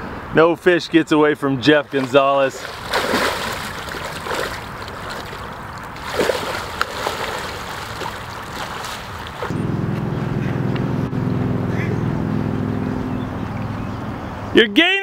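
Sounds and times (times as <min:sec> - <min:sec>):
water splashing and sloshing: 0:01.7 - 0:09.6
steady hum: 0:02.6 - 0:14.2.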